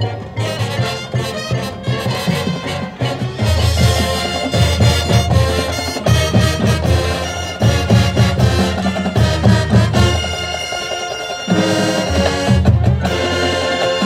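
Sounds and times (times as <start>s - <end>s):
drums and percussion: 0.0s - 14.0s
marching band playing: 0.0s - 14.0s.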